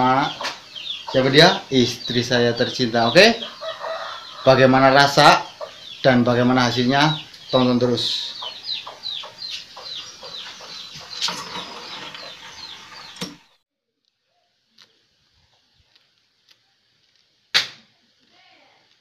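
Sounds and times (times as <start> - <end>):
chickens peeping and clucking: 0.0 - 13.4.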